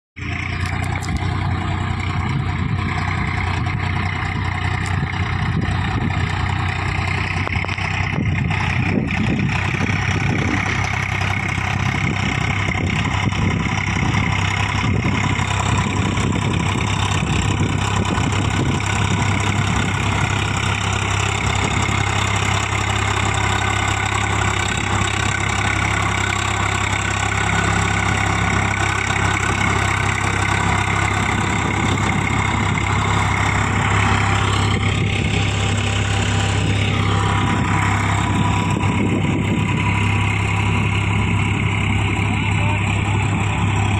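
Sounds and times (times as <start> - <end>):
dozer blade pushing soil: 0.2 - 43.9
tractor diesel engine running: 0.2 - 43.9.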